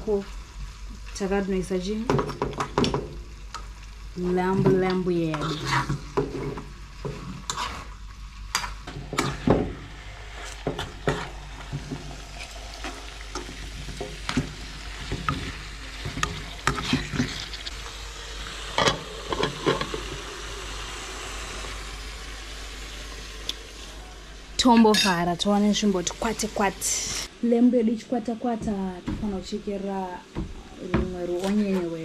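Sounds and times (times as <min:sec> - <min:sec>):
meat sizzling in a pan: 0:00.0 - 0:27.3
metal spoon scraping a pan: 0:05.3 - 0:09.5, 0:15.3 - 0:17.7.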